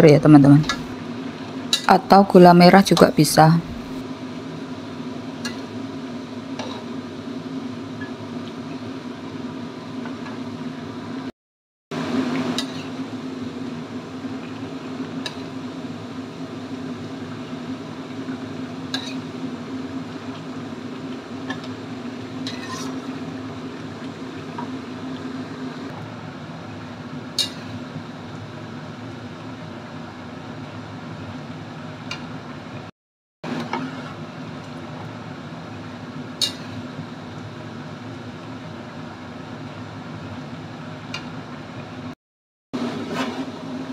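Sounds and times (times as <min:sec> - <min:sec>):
broth simmering hiss: 0:12.0 - 0:31.5.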